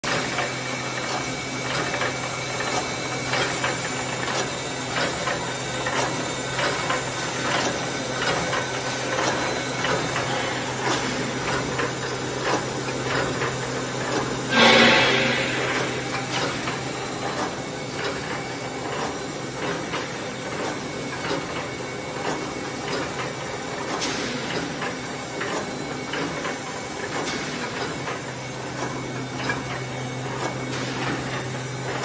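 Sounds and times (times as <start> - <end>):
mechanical knocks of machine: 14.1 - 18.4.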